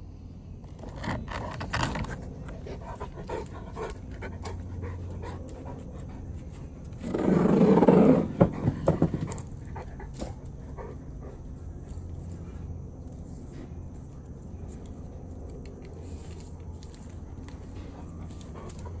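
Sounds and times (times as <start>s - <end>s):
small dog panting: 2.5s - 7.0s, 17.3s - 19.0s.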